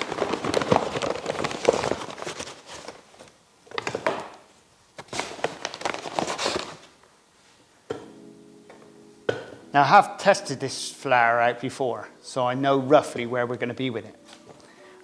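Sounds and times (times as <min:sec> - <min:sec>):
paper sack rustling and crinkling: 0:00.0 - 0:04.2, 0:05.0 - 0:06.9.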